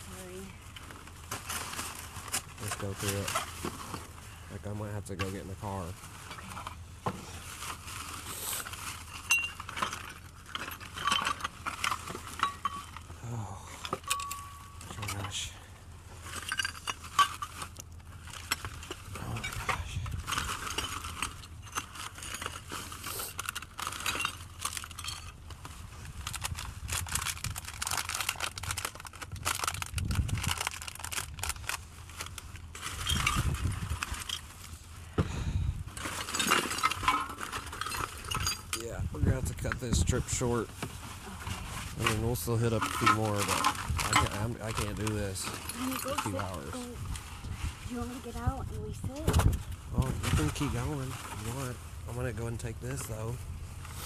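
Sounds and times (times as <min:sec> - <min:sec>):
rummaging clinks and rattles: 0:07.4 - 0:13.2, 0:13.8 - 0:15.5, 0:16.2 - 0:34.8, 0:35.9 - 0:38.9, 0:41.4 - 0:47.1
wind buffeting microphone: 0:29.3 - 0:30.6, 0:33.1 - 0:34.1.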